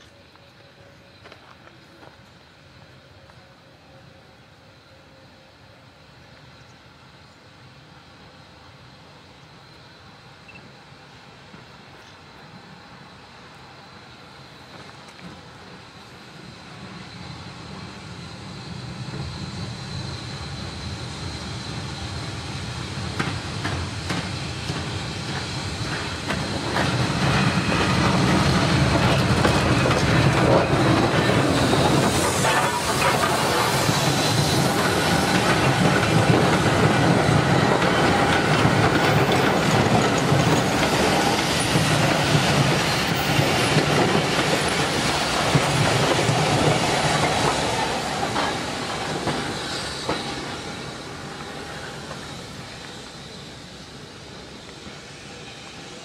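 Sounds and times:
steam train passing: 0.0s - 56.0s.

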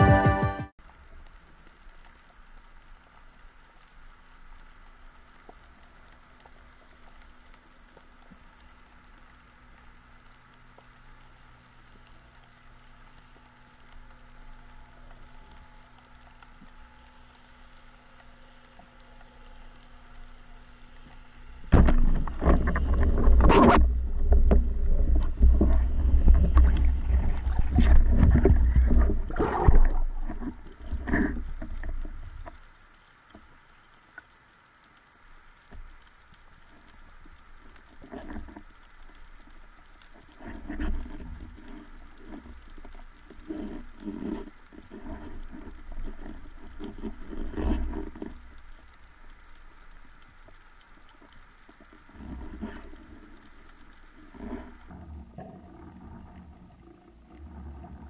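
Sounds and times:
underwater churning and rumble: 0.9s - 58.0s
bumps and sloshing underwater: 20.8s - 33.6s, 35.8s - 58.0s.

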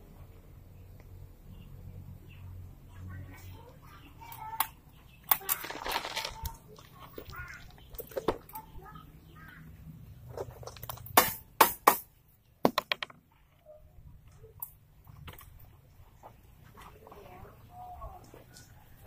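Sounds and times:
hand tool striking masonry: 11.0s - 13.2s.

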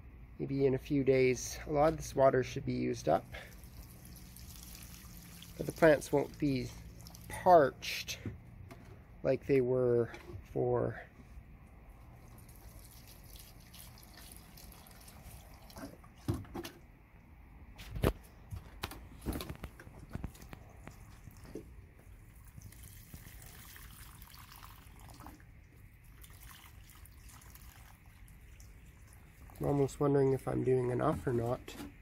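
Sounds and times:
water pouring onto soil: 3.2s - 8.0s, 12.0s - 16.2s, 20.2s - 30.4s.

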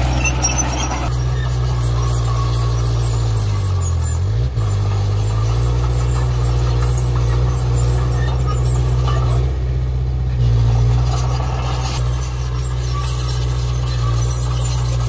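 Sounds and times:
bulldozer diesel engine running: 0.0s - 15.0s.

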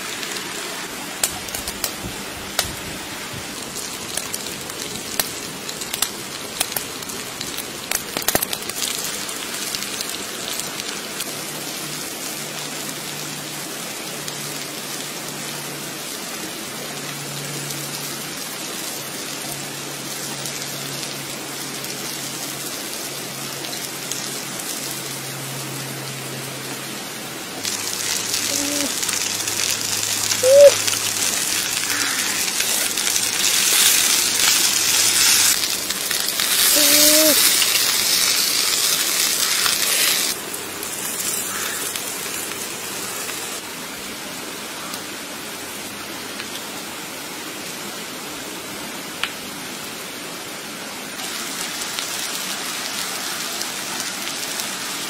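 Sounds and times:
food sizzling on hot stone: 0.0s - 11.6s, 27.6s - 43.6s, 51.2s - 55.0s
wood fire crackling: 0.0s - 16.3s, 27.6s - 43.7s, 51.2s - 55.0s.

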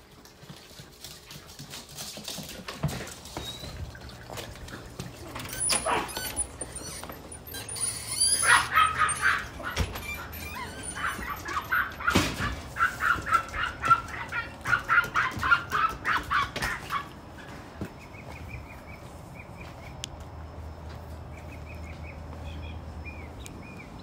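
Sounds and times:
animal calls: 5.2s - 17.2s.

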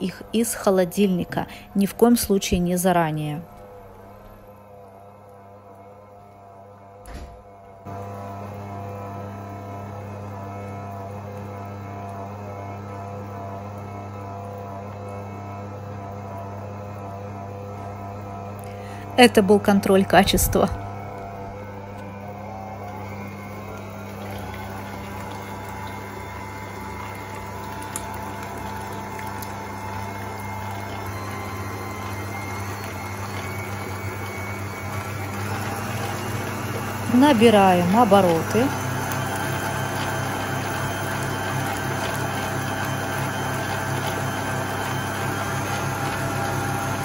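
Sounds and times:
stand mixer motor humming: 0.0s - 47.0s.

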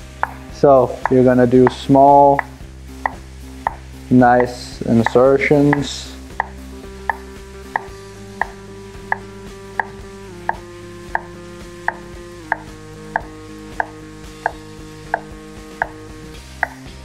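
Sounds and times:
sustained tones: 0.0s - 17.0s
knife tapping on cutting board: 0.2s - 1.8s, 2.4s - 3.8s, 5.0s - 7.2s, 7.8s - 9.2s, 9.8s - 16.0s, 16.6s - 16.9s.

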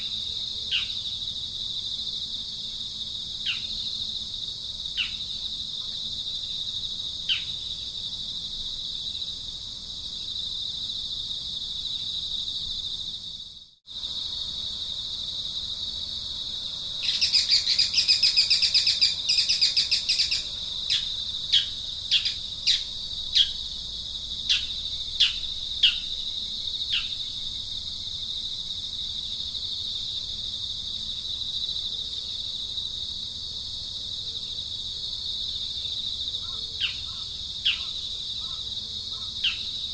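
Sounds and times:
high-pitched insect drone: 0.0s - 39.9s
bird chirps: 17.0s - 23.6s, 36.4s - 39.8s.

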